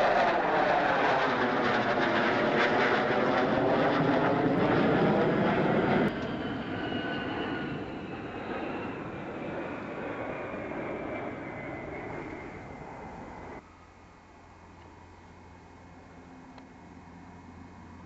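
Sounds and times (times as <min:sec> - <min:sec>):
jet engines roaring overhead: 0:00.0 - 0:13.6
distant jet climbing away: 0:00.0 - 0:18.0.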